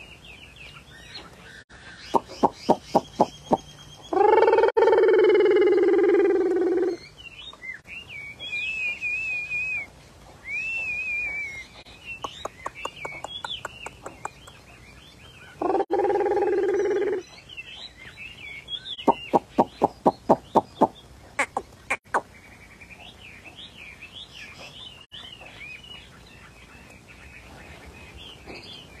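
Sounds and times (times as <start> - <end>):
songbirds warbling: 0.0 - 29.0
lower-pitched bird call: 2.0 - 7.1, 15.5 - 17.2
bird sharp repeated notes: 2.1 - 3.7, 19.0 - 22.2.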